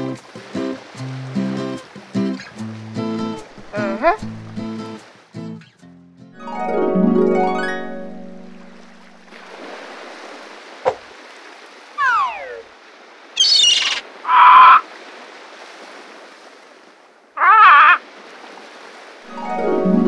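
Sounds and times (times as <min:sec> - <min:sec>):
cartoon bird calls: 0:12.0 - 0:12.7, 0:13.4 - 0:14.8, 0:17.4 - 0:18.0
heron warbling squawk: 0:12.0 - 0:12.7, 0:13.4 - 0:14.8, 0:17.4 - 0:18.0.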